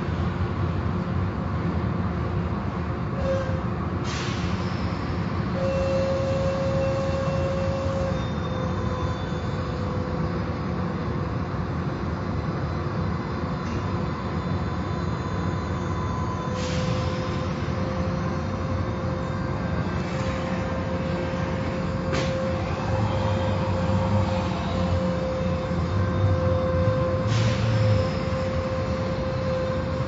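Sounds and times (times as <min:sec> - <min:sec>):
car wash machinery rumble: 0:10.0 - 0:30.0.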